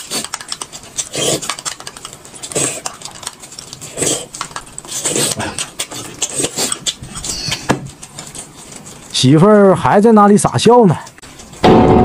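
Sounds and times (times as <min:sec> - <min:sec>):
chewing: 0:00.0 - 0:09.2.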